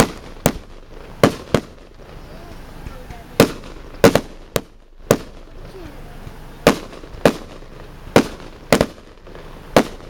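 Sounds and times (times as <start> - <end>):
firework shells bursting: 0.0 - 10.0.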